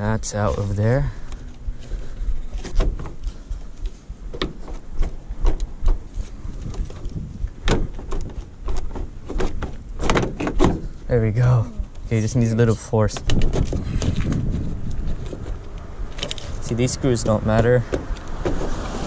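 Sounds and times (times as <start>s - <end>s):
plastic grille clicking and creaking: 2.5s - 10.9s, 12.8s - 16.8s.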